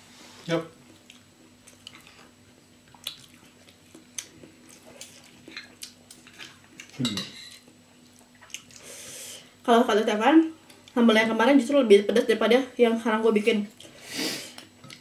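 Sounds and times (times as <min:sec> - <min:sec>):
quiet chewing: 0:00.9 - 0:08.9.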